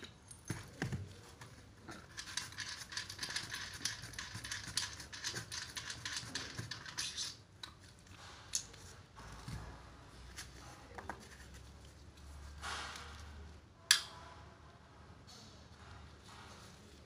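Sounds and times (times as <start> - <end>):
gloved hands scratching and rustling: 0.4 - 8.0.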